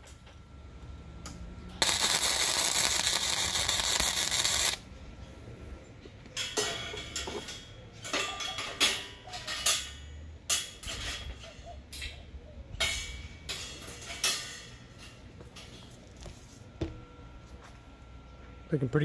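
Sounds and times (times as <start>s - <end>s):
steel frame clanking and rattling: 6.4s - 12.1s, 12.8s - 15.9s.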